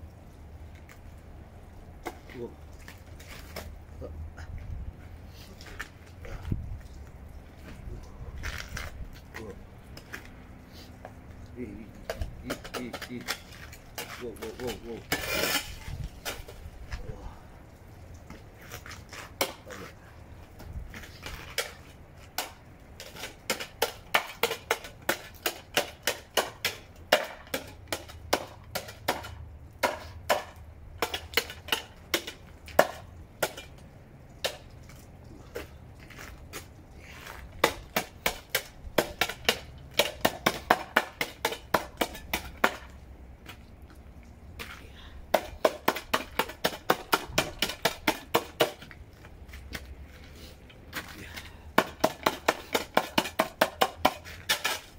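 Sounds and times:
shovel chopping ice: 12.5 - 15.8.

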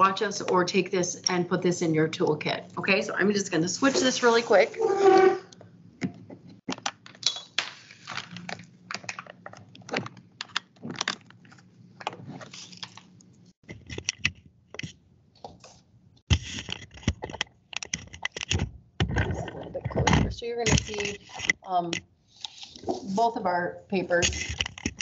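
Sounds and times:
webcam clicks and rattles: 16.3 - 22.0, 24.2 - 25.0.

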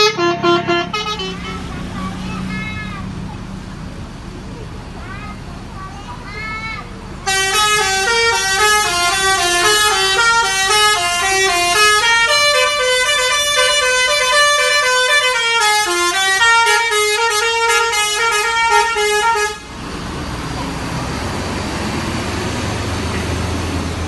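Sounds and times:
multi-tone musical bus horn: 0.0 - 2.9, 7.2 - 19.8.

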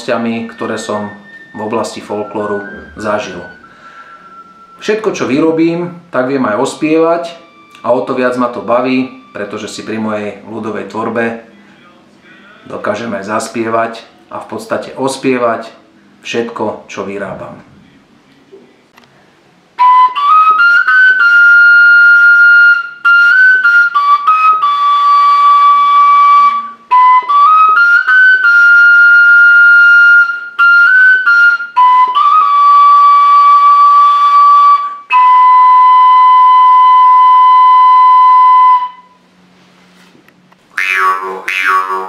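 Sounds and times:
wooden flute folk melody: 0.0 - 11.5, 19.7 - 39.2, 40.7 - 42.0.

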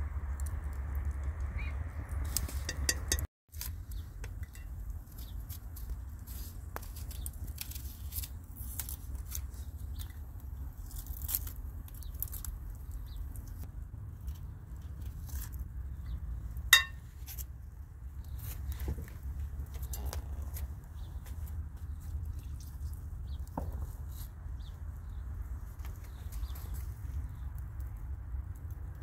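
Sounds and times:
onion skin crackling: 3.5 - 17.6
knife clinking on plate: 16.8 - 17.0.

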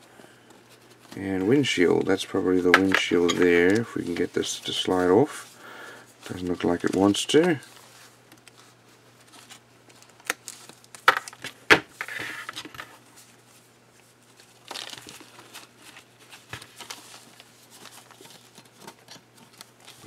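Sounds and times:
foam wrap rustling and crinkling: 6.2 - 11.1, 12.4 - 20.0.

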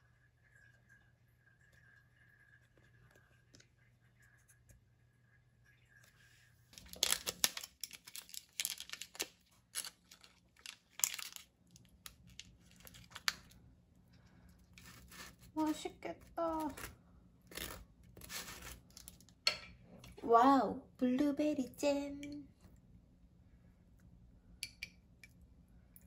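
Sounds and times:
foil wrapper crinkling and tearing: 6.8 - 13.6, 14.7 - 19.3.

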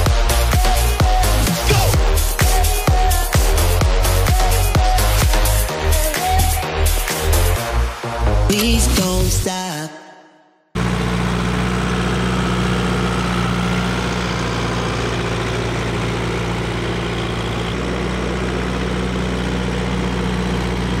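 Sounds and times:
tractor diesel engine running: 0.0 - 6.6, 10.8 - 21.0
music: 0.0 - 10.6.

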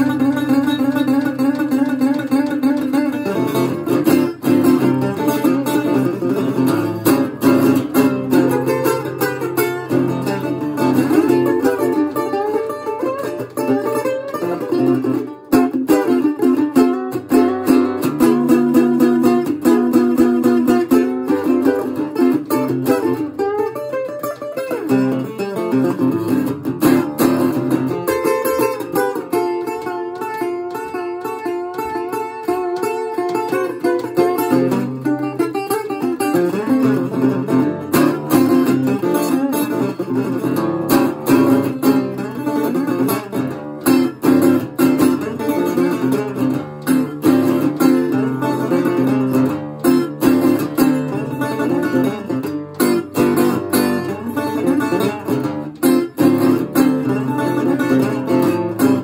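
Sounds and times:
resonator guitar blues picking: 0.0 - 59.0.

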